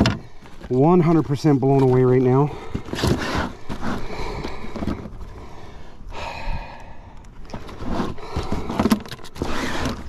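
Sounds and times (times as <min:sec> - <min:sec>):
man breathing hard: 0:02.5 - 0:09.1.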